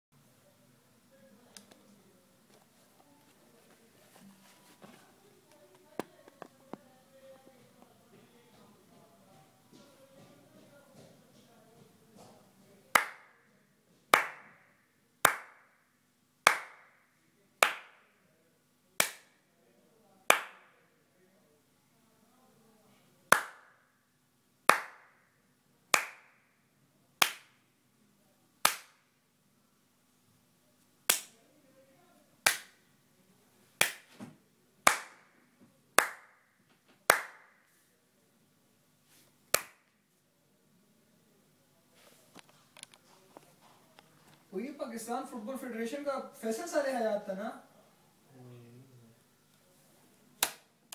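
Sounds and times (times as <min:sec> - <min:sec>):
hand claps: 0:12.9 - 0:13.4, 0:14.1 - 0:15.7, 0:16.4 - 0:17.0, 0:17.6 - 0:18.1, 0:19.0 - 0:19.4, 0:20.3 - 0:20.7, 0:23.3 - 0:23.8, 0:24.7 - 0:25.2, 0:25.9 - 0:26.4, 0:27.2 - 0:27.6, 0:28.6 - 0:29.1, 0:31.1 - 0:31.3, 0:32.4 - 0:32.8, 0:33.8 - 0:34.2, 0:34.8 - 0:35.4, 0:36.0 - 0:37.6, 0:39.5 - 0:39.9, 0:50.4 - 0:50.7.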